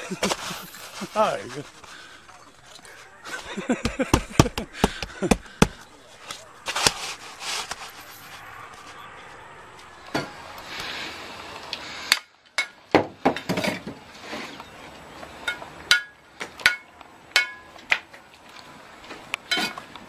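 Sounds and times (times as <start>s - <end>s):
bricks and trowel clinking: 19.5s - 19.8s.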